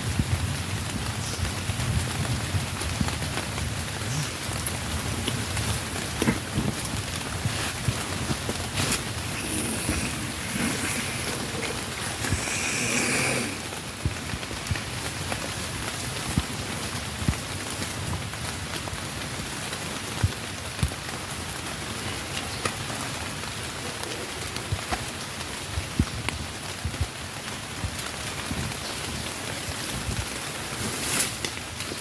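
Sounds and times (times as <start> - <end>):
rain-like hiss: 0.0 - 32.0.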